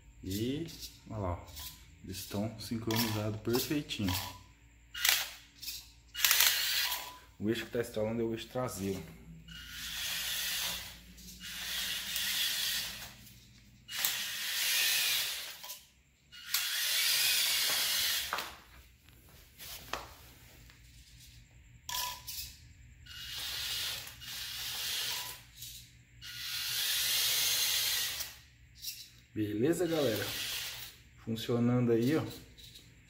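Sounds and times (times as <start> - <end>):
sharp clicks: 5.0 - 7.1
rc truck drivetrain whirring: 5.0 - 7.2, 9.5 - 18.4, 21.9 - 29.0, 29.8 - 31.0.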